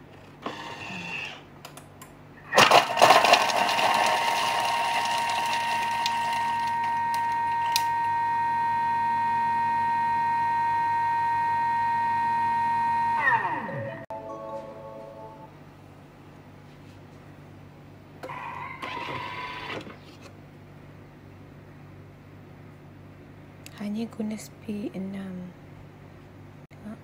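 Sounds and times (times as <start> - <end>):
food processor blending: 2.5 - 10.1.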